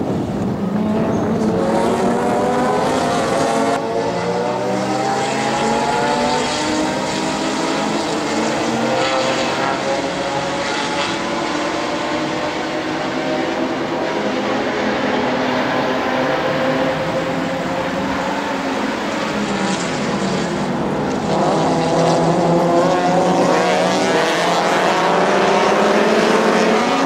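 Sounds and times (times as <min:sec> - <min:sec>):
race car engines accelerating: 0:00.0 - 0:27.0.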